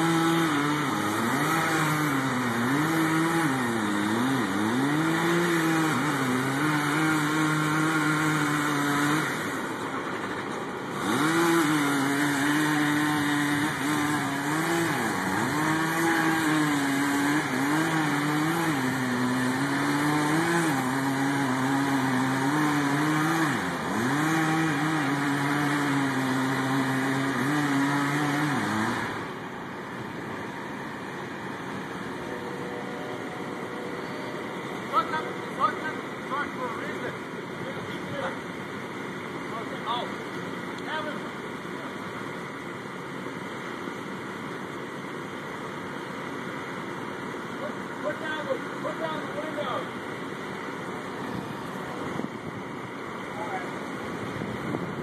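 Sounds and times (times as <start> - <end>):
small gasoline engine running hard: 0.0 - 38.4.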